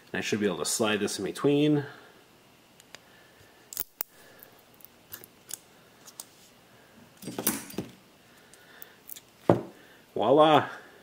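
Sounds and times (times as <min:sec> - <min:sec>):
magnet clicking and rattling: 0:03.7 - 0:06.3.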